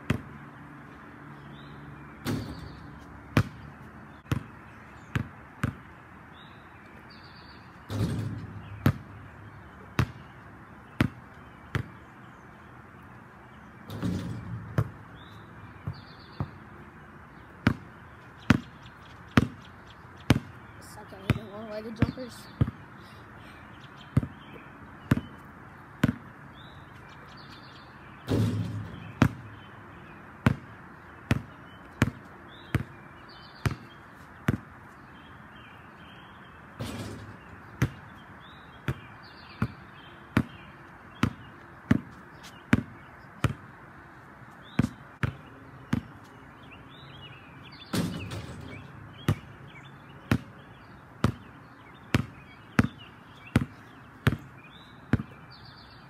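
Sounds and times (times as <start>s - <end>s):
basketball bouncing on concrete: 0.0s - 0.4s, 2.2s - 5.9s, 7.9s - 12.0s, 13.9s - 16.8s, 17.4s - 22.8s, 24.1s - 26.3s, 28.3s - 29.7s, 30.4s - 34.8s, 36.8s - 38.2s, 38.8s - 43.7s, 44.6s - 46.3s, 47.9s - 49.6s, 50.2s - 55.4s
ball hitting backboard and rim: 2.2s - 4.5s, 5.1s - 5.8s, 7.9s - 10.3s, 11.0s - 12.0s, 13.9s - 16.6s, 17.6s - 17.9s, 18.5s - 19.7s, 20.3s - 20.6s, 25.1s - 25.4s, 26.0s - 26.2s, 28.3s - 29.7s, 30.4s - 33.0s, 33.6s - 34.7s, 36.8s - 38.2s, 41.2s - 43.6s, 44.8s - 46.2s, 47.8s - 49.6s, 50.2s - 50.6s, 51.2s - 51.5s, 52.1s - 53.0s, 53.6s - 54.5s, 55.1s - 55.4s.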